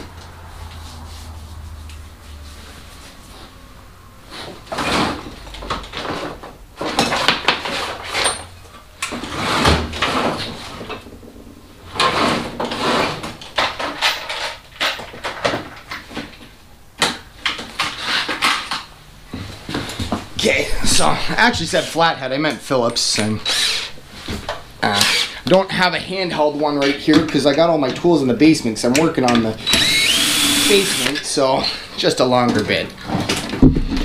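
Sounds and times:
tools clattering together: 0:13.5 - 0:16.4.

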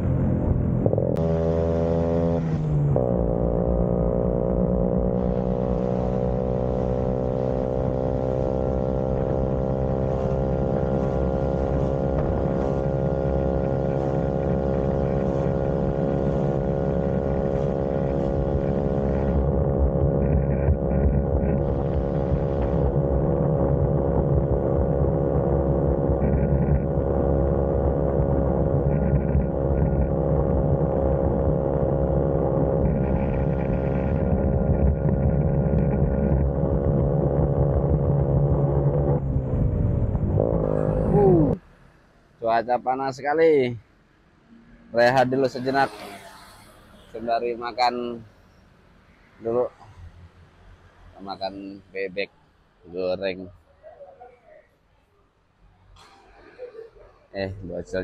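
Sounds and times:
scooter engine droning: 0:00.0 - 0:41.6
low rumble: 0:11.6 - 0:41.6.

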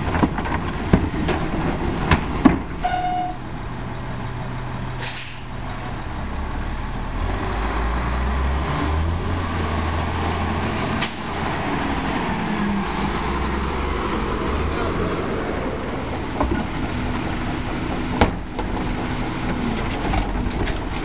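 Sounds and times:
garbage truck diesel engine: 0:00.0 - 0:21.0
air brake hiss: 0:05.0 - 0:05.6.

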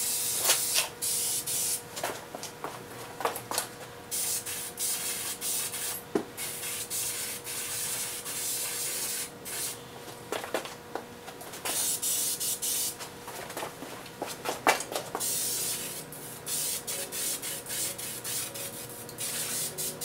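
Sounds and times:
spray paint can hissing: 0:00.0 - 0:01.8, 0:04.1 - 0:09.8, 0:11.7 - 0:13.0, 0:15.2 - 0:20.0.

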